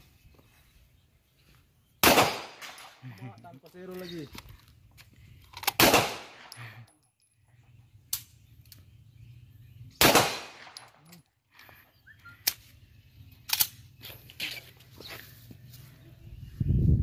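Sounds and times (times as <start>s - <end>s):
handgun shots with echo: 2.0s - 3.0s, 5.7s - 6.6s, 10.0s - 11.0s.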